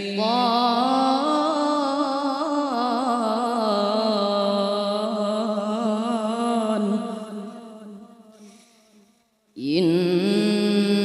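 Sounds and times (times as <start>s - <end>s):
boy reciting melodically into microphone: 0.0s - 8.6s, 9.6s - 11.0s.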